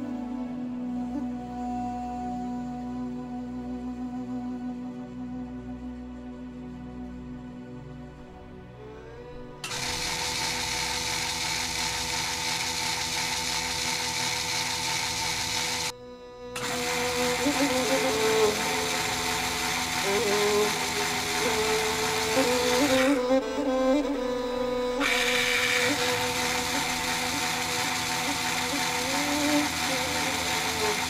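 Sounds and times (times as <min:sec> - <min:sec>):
small electric motor running: 0:09.2 - 0:16.0, 0:16.6 - 0:31.0
wheels spinning on rollers: 0:09.6 - 0:15.9, 0:16.6 - 0:23.4, 0:25.0 - 0:31.0.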